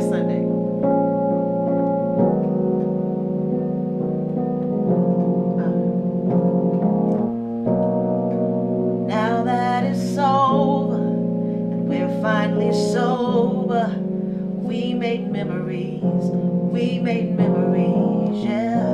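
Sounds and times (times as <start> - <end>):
slow keyboard piano chords: 0.0 - 18.9
woman singing with vibrato: 9.1 - 18.9.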